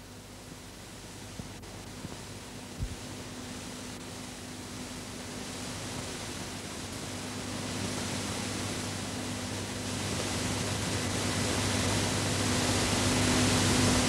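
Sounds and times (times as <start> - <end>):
low electrical hum: 0.0 - 14.0
tape hiss: 0.0 - 14.0.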